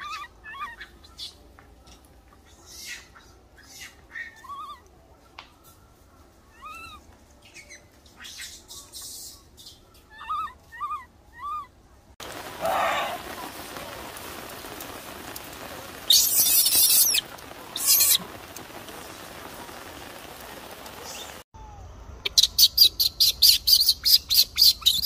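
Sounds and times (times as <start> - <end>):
baby monkey whimpering cries: 0.0 - 0.9, 4.2 - 4.9, 6.5 - 7.0, 10.1 - 11.7
dry leaves rustling: 12.2 - 21.4.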